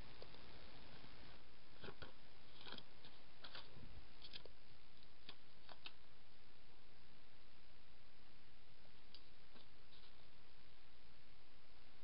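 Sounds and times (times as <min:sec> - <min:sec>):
steady hiss: 0:00.0 - 0:12.0
soft paper rustles: 0:01.7 - 0:06.0, 0:09.0 - 0:10.4.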